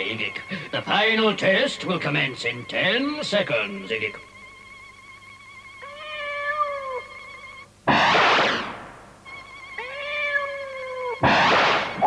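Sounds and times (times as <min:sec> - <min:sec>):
faint wavering electronic hum: 0:00.0 - 0:12.0
cartoon cat meowing: 0:05.8 - 0:07.1, 0:09.8 - 0:11.4.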